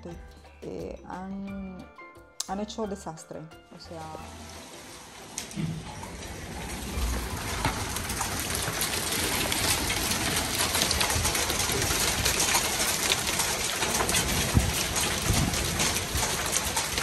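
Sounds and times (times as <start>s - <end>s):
steady rain falling: 4.0s - 17.0s.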